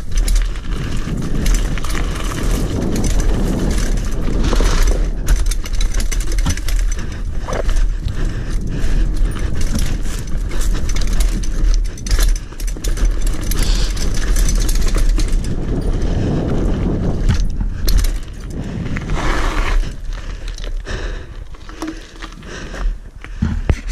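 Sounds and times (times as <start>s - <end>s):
bike rattling and knocking: 0.0s - 23.9s
bike tyres on dirt and gravel: 0.0s - 23.9s
wind rumble on microphone: 0.0s - 23.9s.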